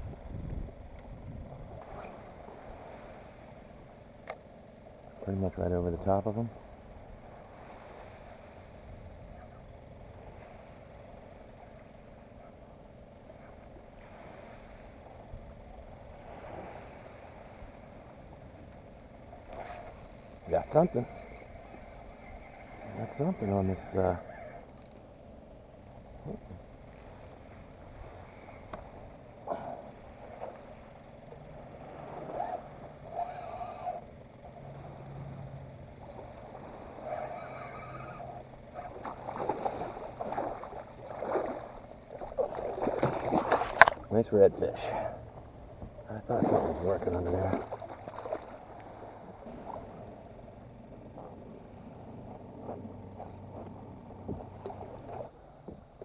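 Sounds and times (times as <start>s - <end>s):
wind on microphone: 0.0s - 3.4s
fishing reel whirring: 0.0s - 44.1s.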